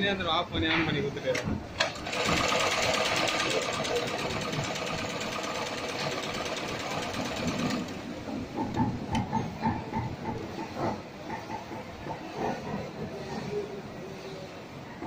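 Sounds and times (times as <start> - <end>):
sewing machine needle chatter: 1.8 - 8.0.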